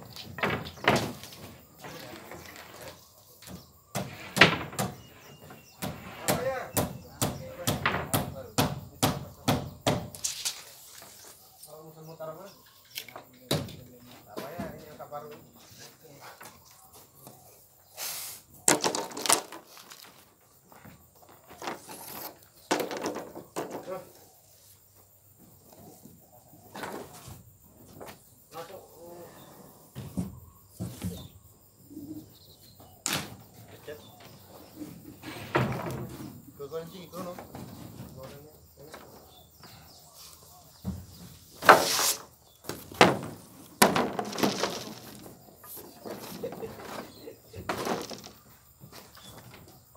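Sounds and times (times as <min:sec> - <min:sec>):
wooden boards knocking: 0:00.0 - 0:10.2, 0:13.2 - 0:15.5, 0:18.7 - 0:21.9, 0:22.6 - 0:24.1, 0:42.6 - 0:49.7
plywood rattling: 0:00.0 - 0:10.4, 0:18.6 - 0:24.2, 0:33.0 - 0:40.0, 0:40.8 - 0:49.9
wood scraping: 0:00.0 - 0:11.8, 0:13.0 - 0:24.9, 0:32.7 - 0:49.9
plywood thud: 0:18.7 - 0:20.2, 0:40.8 - 0:45.4
plywood knocking: 0:42.7 - 0:45.4.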